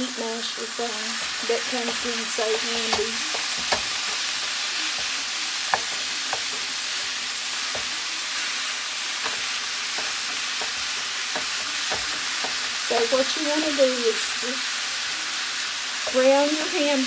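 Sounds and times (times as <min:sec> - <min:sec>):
meat sizzling in a frying pan: 0:00.0 - 0:17.0
masher knocking against pan: 0:02.8 - 0:06.7, 0:09.2 - 0:13.2.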